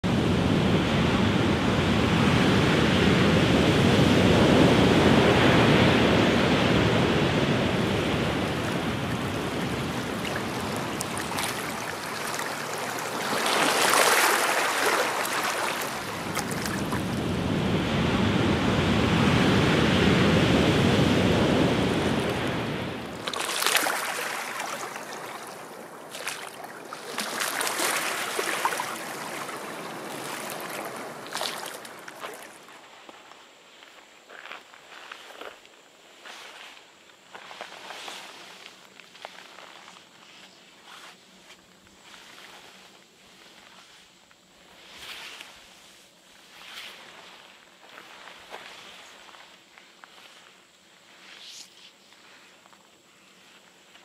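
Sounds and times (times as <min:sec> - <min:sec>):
sea waves breaking on shore: 0:00.1 - 0:32.7
water splashing among rocks: 0:08.4 - 0:17.2, 0:23.1 - 0:32.7.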